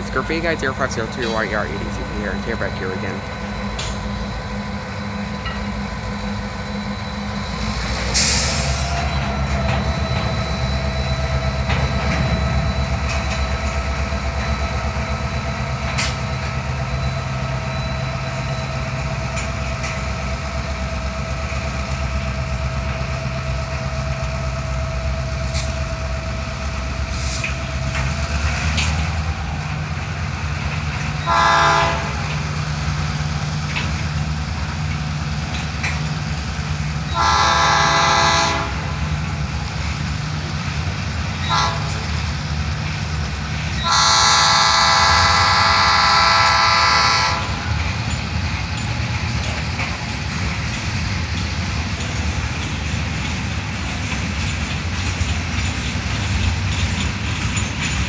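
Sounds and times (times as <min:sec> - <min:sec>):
freight train wheels clattering: 0:00.0 - 0:58.0
thin steady wheel squeal: 0:00.0 - 0:58.0
train horn blast: 0:31.2 - 0:32.4, 0:37.1 - 0:39.2, 0:41.4 - 0:42.2, 0:43.8 - 0:47.7.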